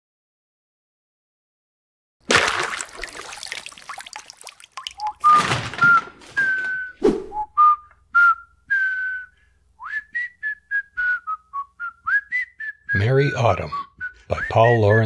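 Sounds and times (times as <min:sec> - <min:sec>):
liquid splash: 0:02.2 - 0:06.0
person whistling a tune: 0:05.0 - 0:15.0.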